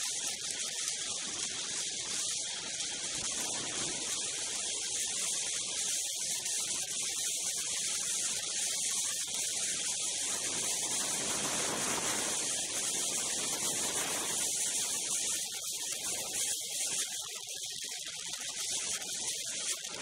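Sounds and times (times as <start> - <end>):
snowmobile wind rushing hiss: 10.1 - 15.4.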